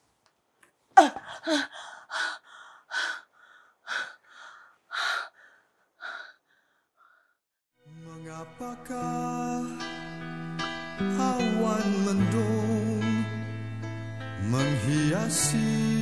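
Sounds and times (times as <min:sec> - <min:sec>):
person crying out in pain: 0:01.0 - 0:02.2
laboured gasping breaths: 0:01.0 - 0:07.4.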